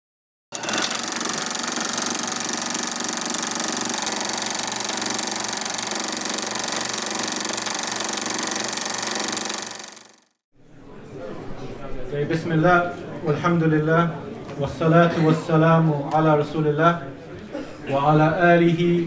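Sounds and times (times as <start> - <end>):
film projector whirring: 0.5 - 10.4.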